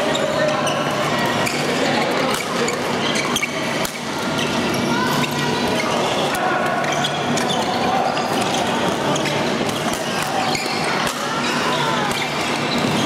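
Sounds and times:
sports hall background noise: 0.0s - 13.0s.

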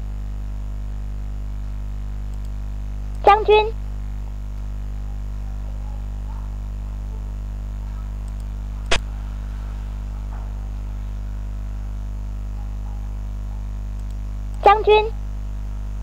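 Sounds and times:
low electrical hum: 0.0s - 16.0s
computer game click: 8.2s - 9.0s.

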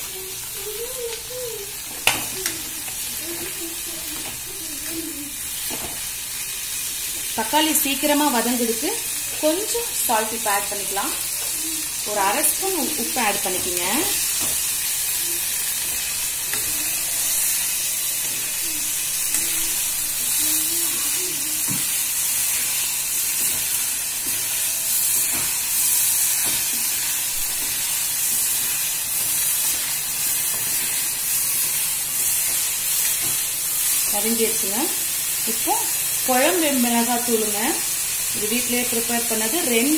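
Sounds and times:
vegetables sizzling in hot oil: 0.0s - 39.9s.

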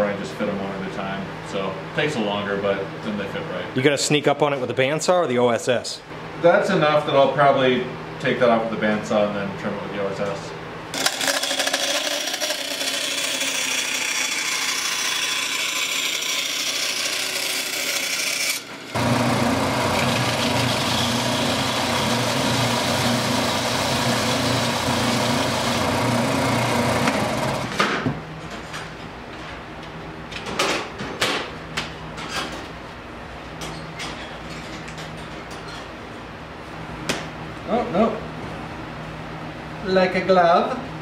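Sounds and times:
bandsaw cutting wood: 11.0s - 27.8s
belt sander humming: 11.0s - 27.8s.

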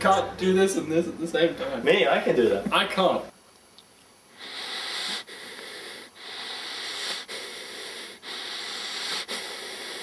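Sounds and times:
breathy hiss: 4.2s - 10.0s.

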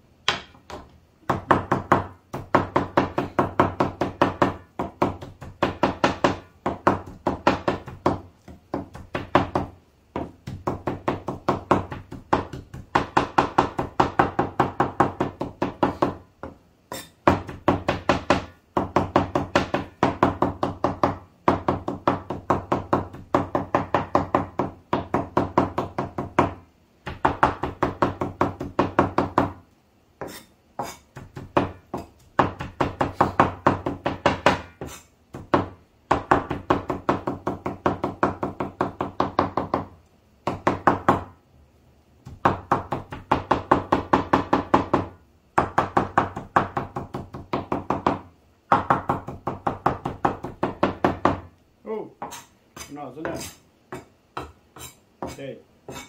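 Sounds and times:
knife chopping meat on wood: 0.3s - 29.6s, 30.2s - 39.9s, 52.2s - 56.0s.

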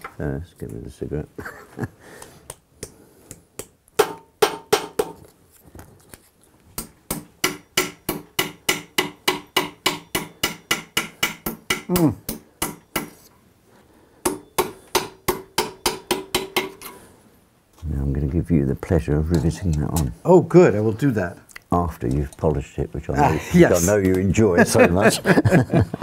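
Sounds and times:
hammer striking metal: 4.0s - 5.2s, 7.1s - 13.2s, 14.2s - 17.0s.

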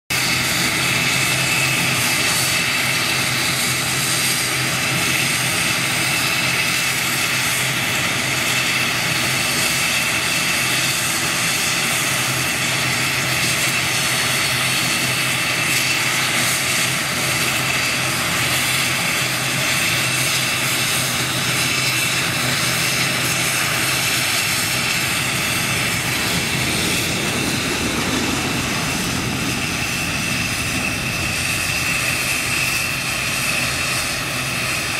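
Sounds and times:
departing jet: 0.1s - 34.9s
turboprop engines running: 0.1s - 34.9s.

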